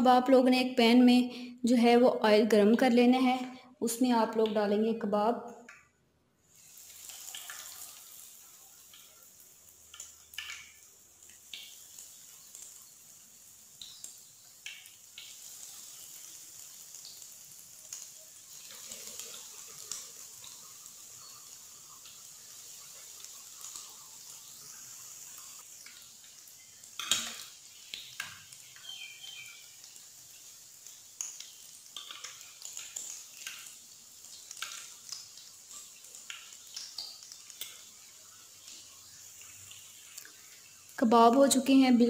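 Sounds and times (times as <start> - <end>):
food sizzling in hot oil: 6.4 - 42.0
tongs clicking against a pan: 9.9 - 10.8, 26.9 - 28.9, 31.2 - 37.9.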